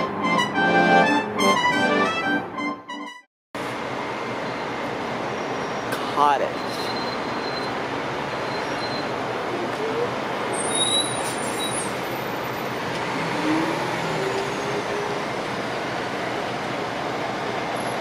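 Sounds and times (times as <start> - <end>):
train engine and wheels on rails: 3.6 - 18.0.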